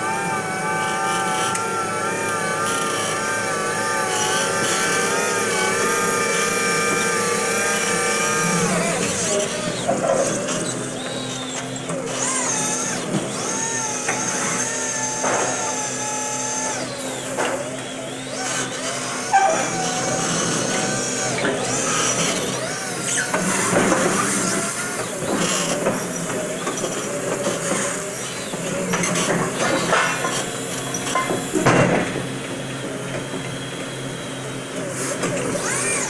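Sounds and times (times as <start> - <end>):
truck rattling and humming: 0.7 - 18.7.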